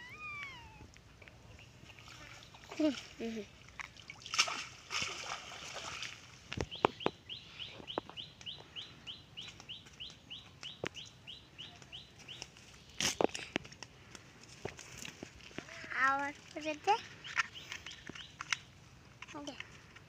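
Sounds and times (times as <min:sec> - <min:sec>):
bird calling short rising notes: 0:00.0 - 0:00.8
water dripping and splashing: 0:01.0 - 0:07.0.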